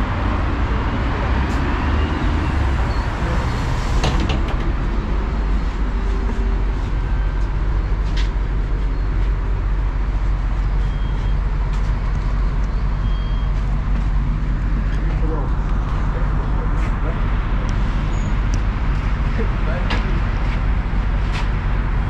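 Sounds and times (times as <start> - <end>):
bus engine and road rumble: 0.0 - 22.0
sharp clicks and knocks: 4.0 - 4.9.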